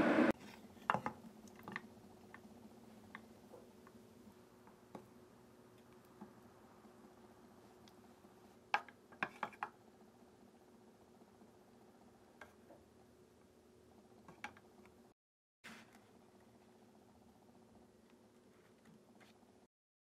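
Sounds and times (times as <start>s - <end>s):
faint steady hum: 0.0s - 15.1s.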